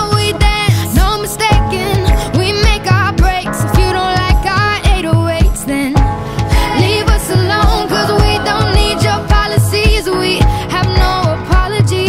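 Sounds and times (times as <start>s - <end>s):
pop music with steady beat: 0.0s - 12.0s.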